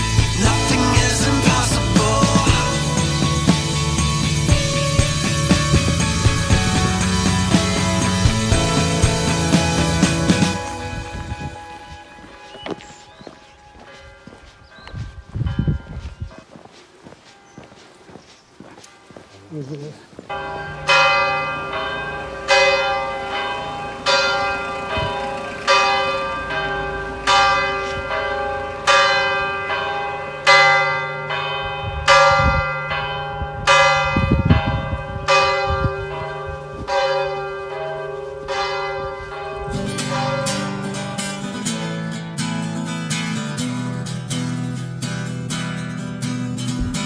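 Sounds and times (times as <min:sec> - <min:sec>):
church bell tolling: 0:00.0 - 0:16.5, 0:20.3 - 0:43.9.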